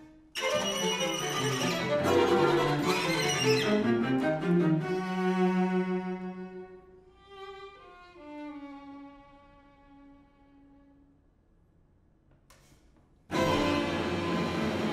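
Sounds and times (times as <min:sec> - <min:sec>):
string quartet playing: 0:00.4 - 0:10.8, 0:13.3 - 0:14.9.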